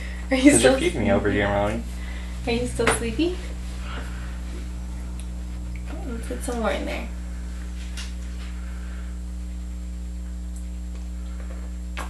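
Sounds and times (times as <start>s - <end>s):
electrical mains hum: 0.0s - 12.0s.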